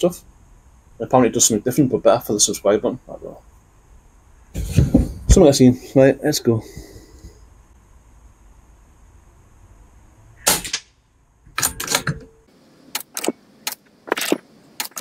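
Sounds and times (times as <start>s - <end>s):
air rifle shots: 10.4s - 11.0s
sharp clicks: 12.9s - 15.0s.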